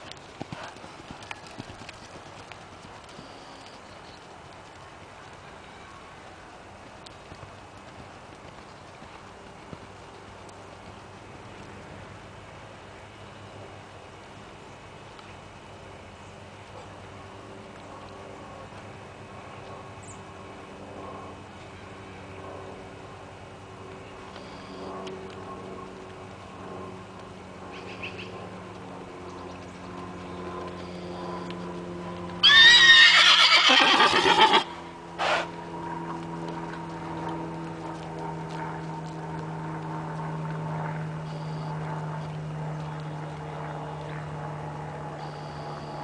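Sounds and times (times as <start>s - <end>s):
horse whinnying: 32.4s - 35.5s.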